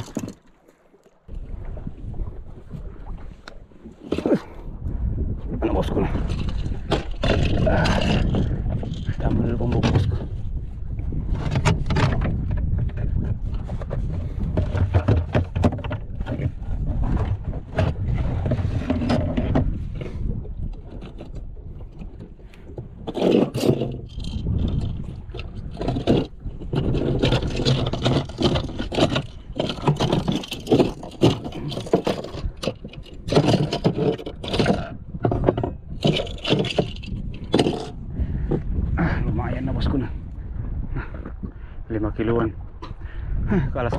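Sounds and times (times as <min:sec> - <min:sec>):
knocking and scraping on boat deck: 0:00.0 - 0:00.6, 0:02.6 - 0:04.6, 0:06.1 - 0:40.0
waves: 0:00.0 - 0:43.9
wind: 0:00.0 - 0:43.9.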